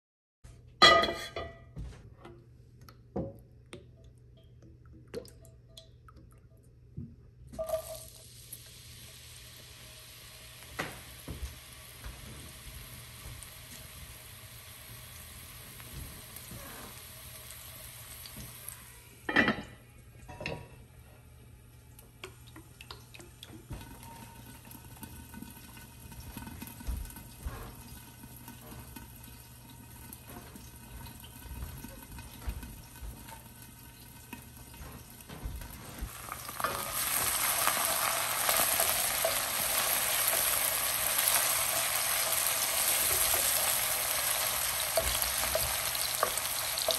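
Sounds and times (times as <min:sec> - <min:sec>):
cookware clanking on hob: 0:00.8 - 0:01.8, 0:19.3 - 0:20.8
onion sizzling in oil: 0:07.6 - 0:19.3, 0:33.0 - 0:46.9.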